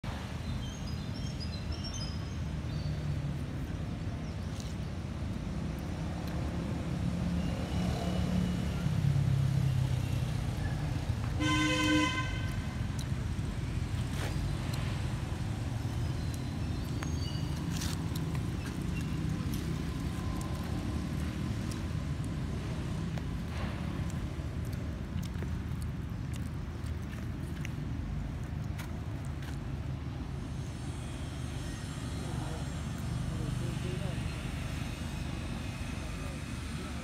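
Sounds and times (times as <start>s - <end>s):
traffic rumble: 0.0s - 37.0s
vehicle horn: 11.4s - 12.8s.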